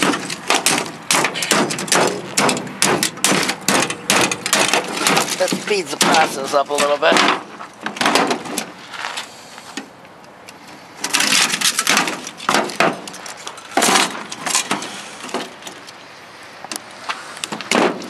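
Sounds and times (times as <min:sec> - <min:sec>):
metal parts clattering: 0:00.0 - 0:07.4, 0:11.0 - 0:15.5
loud metal clanks: 0:00.0 - 0:08.7.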